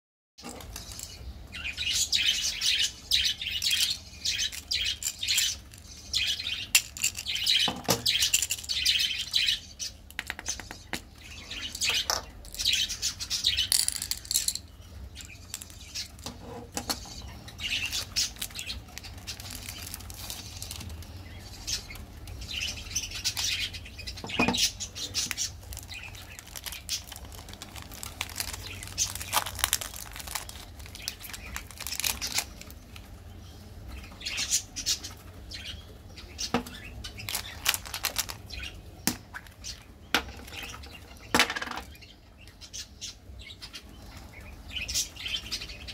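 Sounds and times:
plastic wrappers crinkling: 3.4s - 9.6s, 13.6s - 21.9s, 25.0s - 33.2s, 36.6s - 39.8s
wrapper twisted open: 17.9s - 21.0s, 25.3s - 32.8s, 37.2s - 38.4s.

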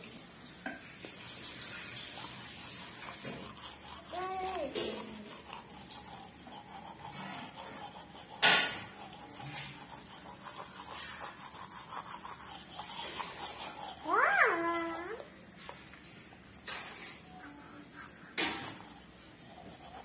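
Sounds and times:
toothbrush scrubbing: 1.0s - 20.0s.

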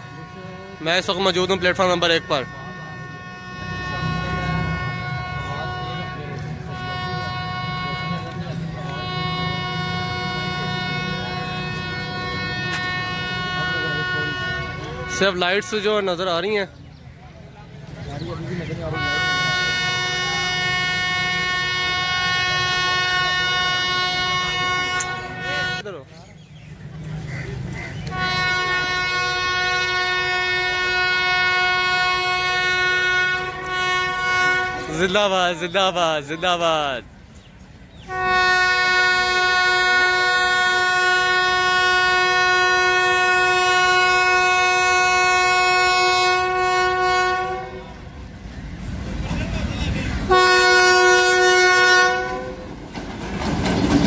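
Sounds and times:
locomotive air horn blast: 0.0s - 15.9s, 18.8s - 26.0s, 28.0s - 35.2s, 38.0s - 48.2s, 50.2s - 52.7s
train rumble: 0.0s - 54.0s.

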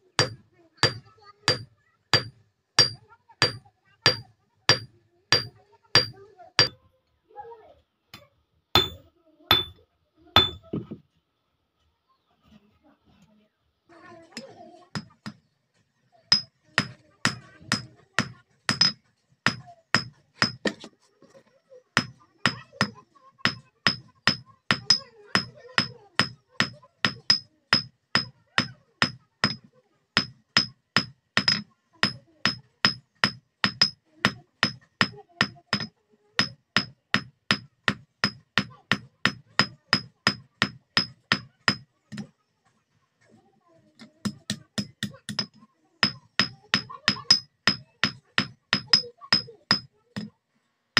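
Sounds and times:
hammer striking metal on anvil: 0.2s - 6.8s, 8.8s - 9.8s, 10.4s - 10.7s, 17.7s - 20.7s, 30.2s - 32.2s, 32.8s - 34.0s, 35.8s - 41.8s, 47.1s - 49.9s.

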